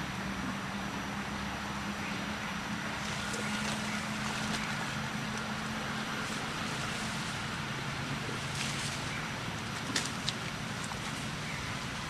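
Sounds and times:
constant hiss: 0:00.0 - 0:12.0
low motor hum: 0:00.0 - 0:12.0.

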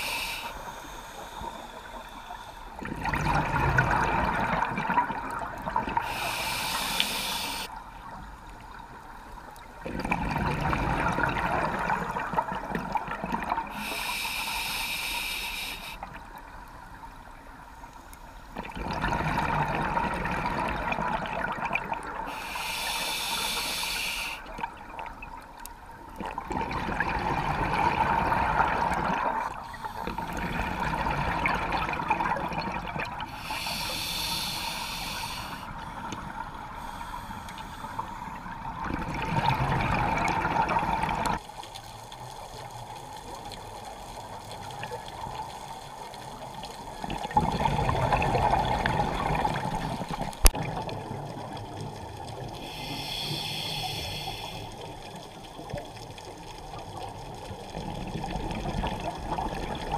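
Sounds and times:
regulator inhalation hiss: 0:00.0 - 0:02.8, 0:06.0 - 0:07.7, 0:13.7 - 0:16.0, 0:22.3 - 0:24.5, 0:33.3 - 0:36.1, 0:36.8 - 0:38.3, 0:52.6 - 0:54.9
exhaled bubbles rushing: 0:02.8 - 0:06.0, 0:09.8 - 0:13.7, 0:18.6 - 0:22.2, 0:26.2 - 0:33.3, 0:38.4 - 0:41.4, 0:47.0 - 0:52.3.

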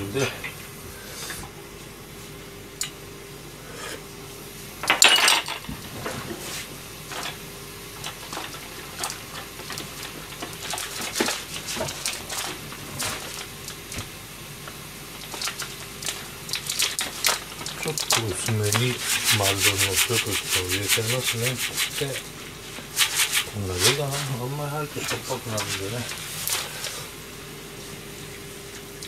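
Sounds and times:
kitchenware clattering: 0:04.8 - 0:06.2.

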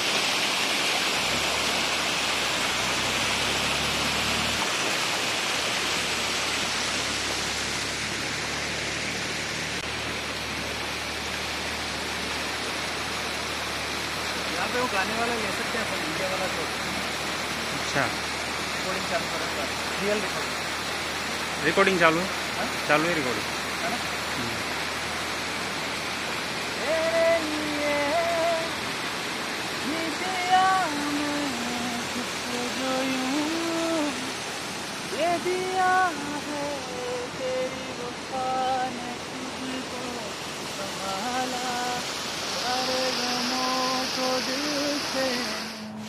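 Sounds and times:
water rushing over a weir: 0:00.0 - 0:46.0
man singing long note: 0:26.8 - 0:28.8, 0:29.8 - 0:34.3, 0:35.1 - 0:46.0.

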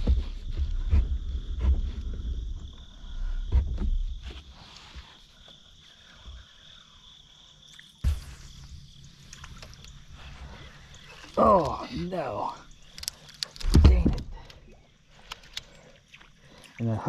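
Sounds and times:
low rumbles and thumps: 0:00.0 - 0:04.6, 0:12.7 - 0:14.8.

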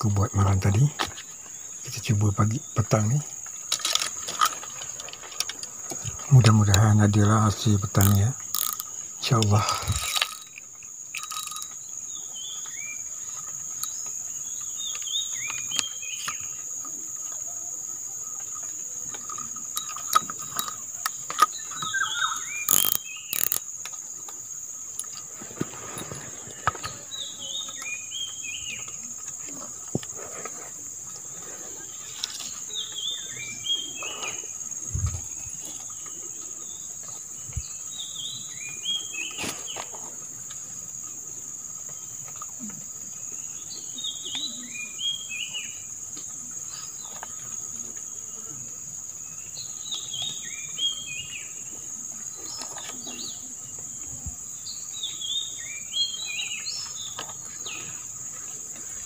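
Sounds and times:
insects droning: 0:00.0 - 0:59.0
fishing gear clicks and rustles: 0:00.3 - 0:16.7, 0:18.5 - 0:33.3
bird chirping: 0:04.0 - 0:23.9, 0:31.4 - 0:40.0, 0:43.3 - 0:46.0.

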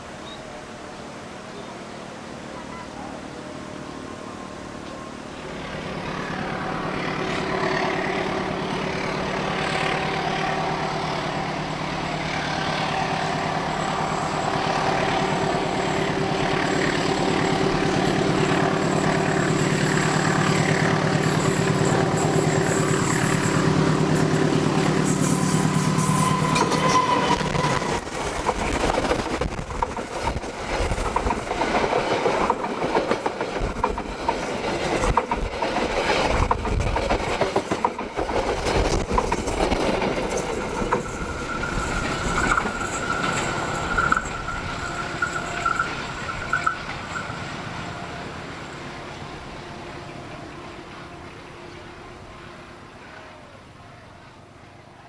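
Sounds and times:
locomotive engine drone: 0:00.0 - 0:55.0
train wheels clattering over rail joints: 0:12.7 - 0:47.4.

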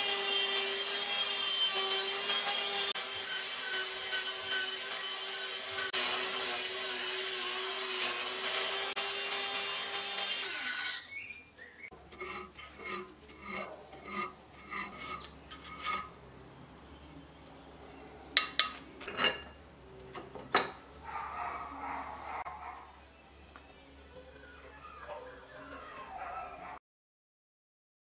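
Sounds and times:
rotary tool grinding steel: 0:00.0 - 0:11.1, 0:12.0 - 0:16.2
hand file stroking steel: 0:12.1 - 0:16.2.

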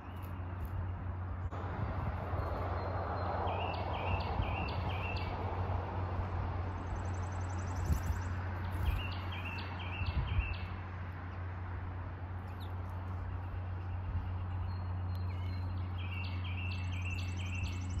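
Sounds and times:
songbird calling rising notes: 0:02.3 - 0:05.4, 0:06.8 - 0:10.7, 0:12.5 - 0:18.0.

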